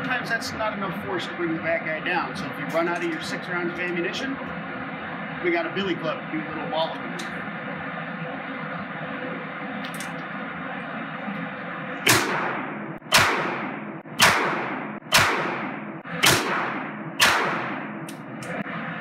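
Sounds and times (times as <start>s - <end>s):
revolver shots ringing indoors: 12.0s - 18.6s.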